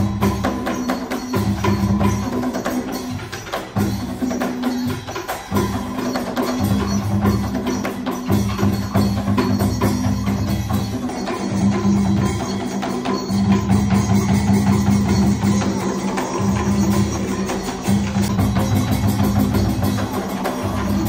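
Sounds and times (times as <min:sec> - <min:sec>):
low drumming: 0:08.4 - 0:21.0.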